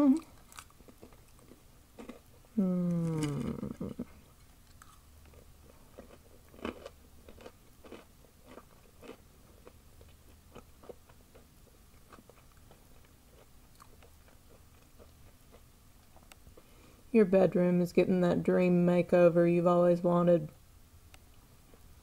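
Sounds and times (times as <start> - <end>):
person chewing crunchy food: 0.3 - 16.8.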